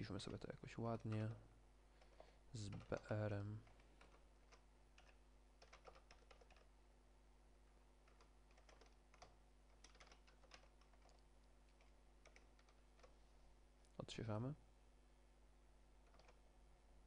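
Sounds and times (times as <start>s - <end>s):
faint keyboard typing: 0.0s - 6.7s, 8.0s - 13.2s, 16.0s - 16.5s.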